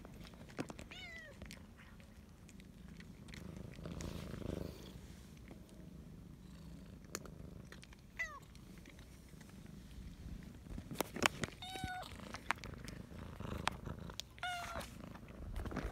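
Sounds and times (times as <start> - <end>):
cat purring: 0.0 - 15.9
cat meowing: 14.4 - 14.9.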